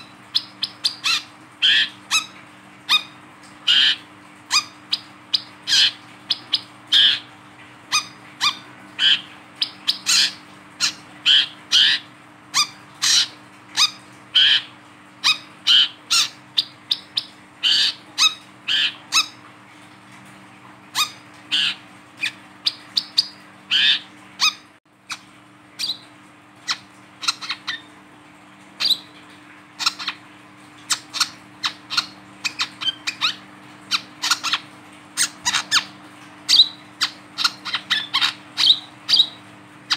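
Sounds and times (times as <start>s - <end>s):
sunbird chirping calls: 0.0s - 7.2s.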